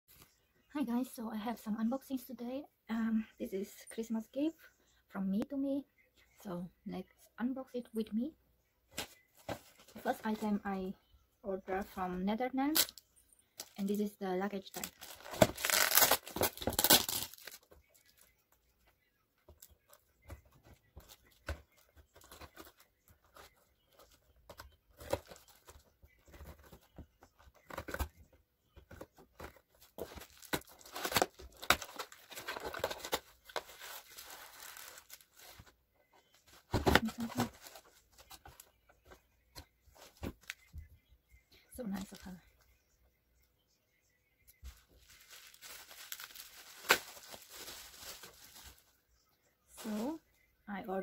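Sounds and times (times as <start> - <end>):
plastic bag crinkling and tearing: 14.6 - 17.7, 30.0 - 35.5, 44.8 - 48.8.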